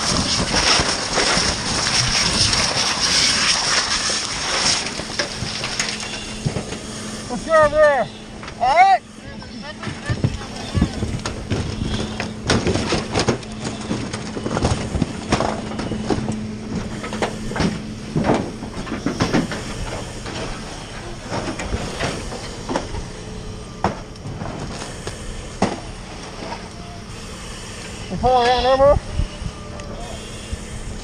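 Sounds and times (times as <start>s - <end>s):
water spraying and hissing: 0.0s - 12.4s
steady low hum: 0.0s - 31.0s
cracks and knocks: 9.8s - 23.0s.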